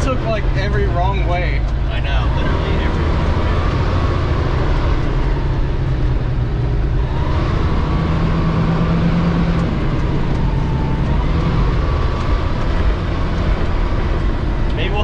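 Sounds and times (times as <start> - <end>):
fire truck engine running under load: 0.0 - 15.0.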